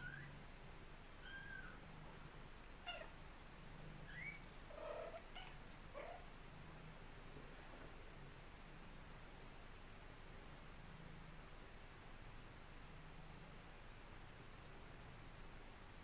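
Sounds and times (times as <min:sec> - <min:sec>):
cat chirping trill calls: 0:01.2 - 0:01.8, 0:04.1 - 0:06.2.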